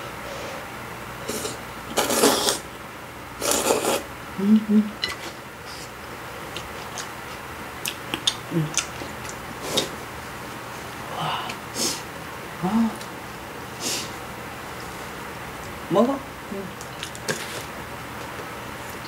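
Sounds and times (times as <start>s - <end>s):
person slurping noodles: 1.2s - 2.7s, 3.4s - 4.1s
person humming: 4.4s - 5.0s, 8.5s - 8.8s, 11.1s - 11.6s, 12.6s - 13.1s.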